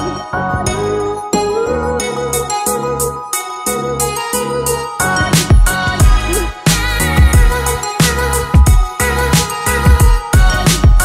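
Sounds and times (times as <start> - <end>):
bass pulses: 5.0 - 11.0.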